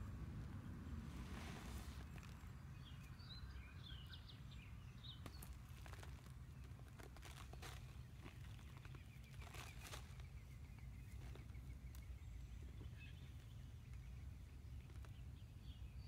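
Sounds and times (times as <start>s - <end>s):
hands digging through soil: 1.0s - 2.9s, 5.1s - 12.2s.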